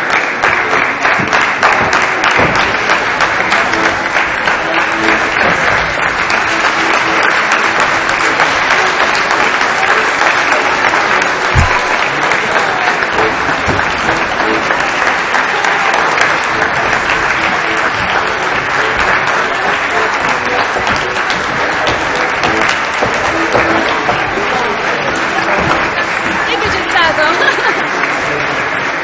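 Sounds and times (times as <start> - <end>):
accordion music: 0.0 - 29.0
audience applause: 0.0 - 29.0.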